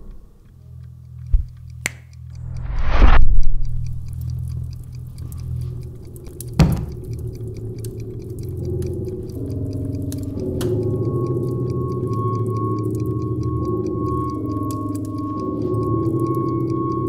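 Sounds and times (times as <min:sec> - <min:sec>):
low sustained drone: 0:07.7 - 0:17.0
higher sustained tones: 0:09.0 - 0:17.0.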